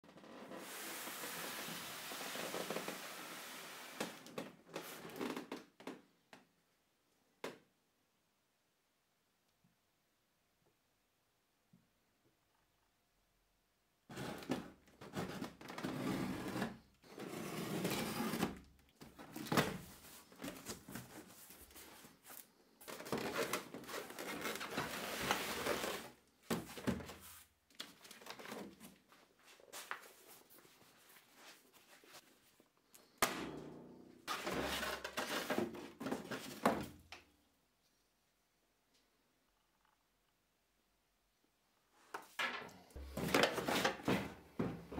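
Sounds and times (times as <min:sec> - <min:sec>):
cardboard and styrofoam rustling: 0:14.1 - 0:32.2, 0:34.3 - 0:37.0, 0:43.0 - 0:44.4.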